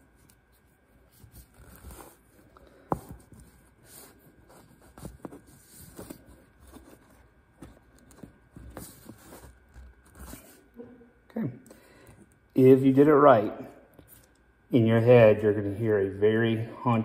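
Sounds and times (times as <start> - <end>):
hands handling cord: 0.1 - 10.6.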